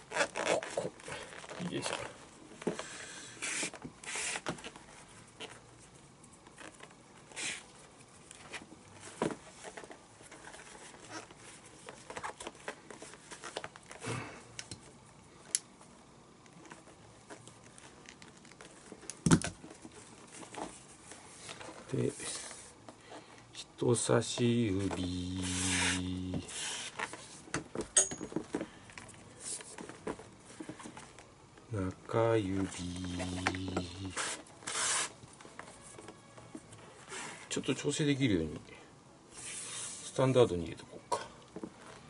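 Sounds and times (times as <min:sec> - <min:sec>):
lace rubbing against leather: 0:00.0 - 0:02.2, 0:03.3 - 0:05.7, 0:25.1 - 0:27.4, 0:32.7 - 0:35.2.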